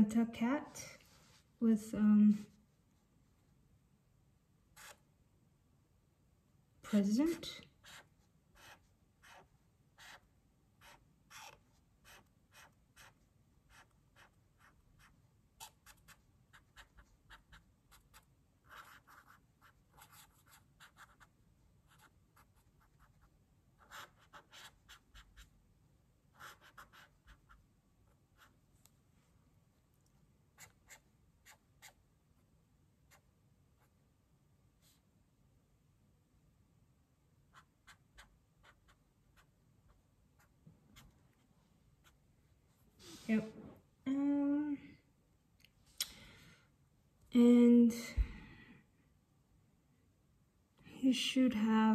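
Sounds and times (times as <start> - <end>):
marker scratching on paper: 4.8 - 5.0, 7.3 - 21.3, 21.9 - 25.5, 26.3 - 27.6, 28.3 - 28.6, 30.6 - 32.0, 37.5 - 41.4.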